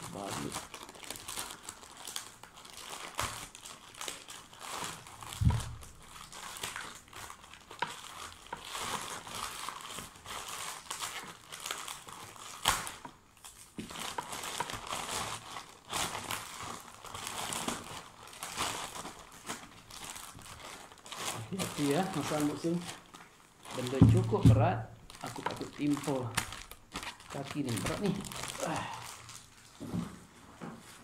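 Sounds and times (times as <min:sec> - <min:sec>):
plastic wrapping crinkling: 0:00.0 - 0:31.0
dull thump: 0:05.4 - 0:05.8.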